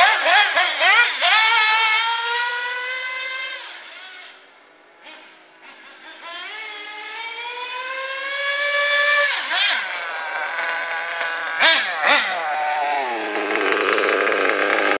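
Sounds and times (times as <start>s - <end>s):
model buggy engine whining: 0.0s - 15.0s
sharp throttle blips: 5.0s - 15.0s.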